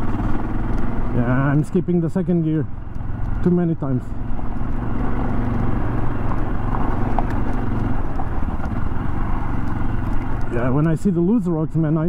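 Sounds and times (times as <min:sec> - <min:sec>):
motorcycle engine running: 0:00.0 - 0:12.0
faint ticks: 0:02.8 - 0:03.4.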